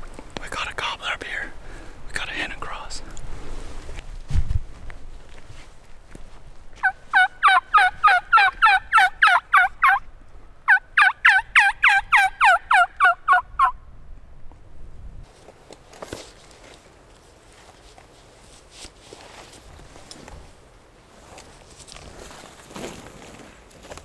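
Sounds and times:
turkey yelping: 6.8 - 10.0, 10.7 - 13.8.

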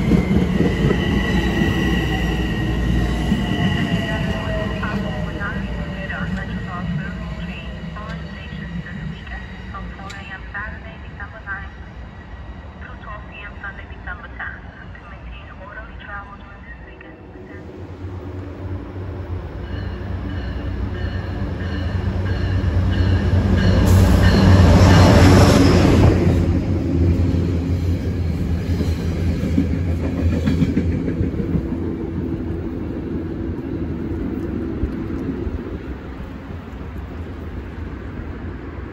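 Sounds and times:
train coaches clattering: 0.0 - 11.6, 19.5 - 38.2
train rumble with whine: 0.0 - 38.9.

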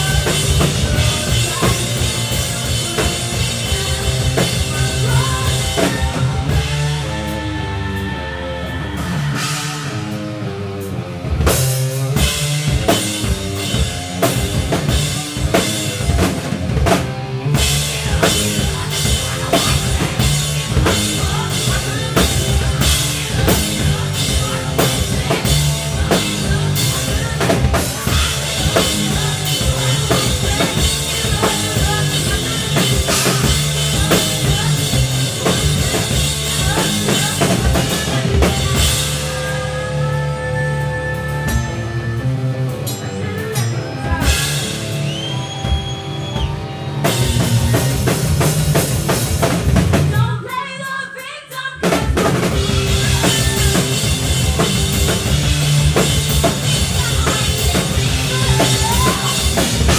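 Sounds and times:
drum kit beat: 0.0 - 59.9
live rock band playing: 0.0 - 59.9.

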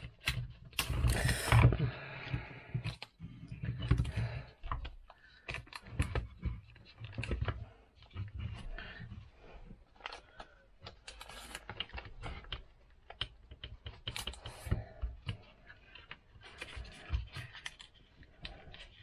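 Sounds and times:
wooden parts clicking and knocking: 9.9 - 19.0.

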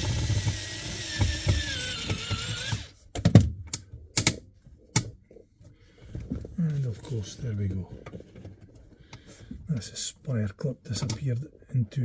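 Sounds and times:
cordless drill whining: 0.0 - 3.0.

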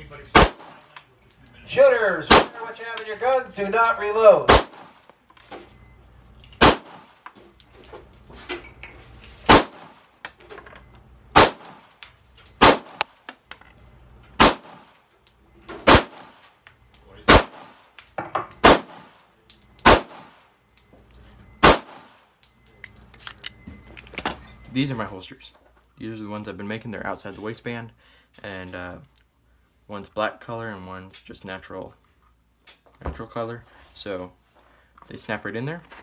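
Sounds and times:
pistol shots: 0.3 - 1.0, 2.2 - 2.8, 4.5 - 5.1, 6.6 - 7.2, 9.5 - 10.1, 11.3 - 12.0, 12.6 - 13.1, 14.4 - 15.0, 15.8 - 16.4, 17.3 - 17.8, 18.6 - 19.2, 19.8 - 20.5, 21.6 - 22.2.

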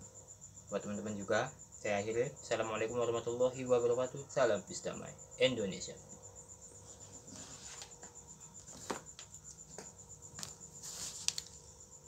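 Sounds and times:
cricket trilling: 0.0 - 12.0
rustling: 6.8 - 11.8.

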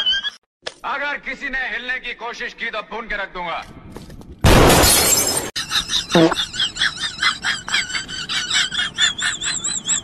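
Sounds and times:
gunfire blast: 4.4 - 5.4.

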